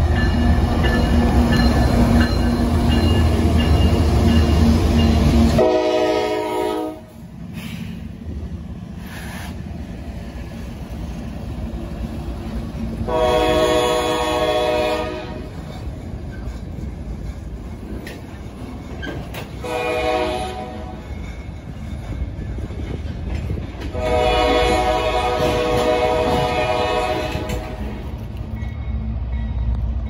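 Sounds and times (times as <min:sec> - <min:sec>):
train rumble and wheel clatter: 0:00.0 - 0:30.0
locomotive horn blasts: 0:05.6 - 0:07.1, 0:13.1 - 0:15.5, 0:19.6 - 0:21.0, 0:23.9 - 0:28.0.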